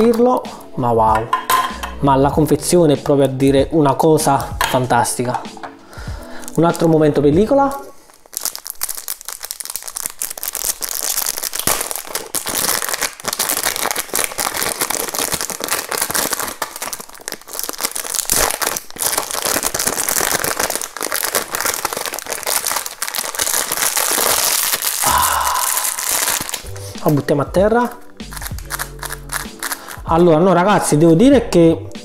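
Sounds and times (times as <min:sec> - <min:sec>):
plastic film peeling and crinkling: 0:07.6 - 0:27.2, 0:27.8 - 0:30.1.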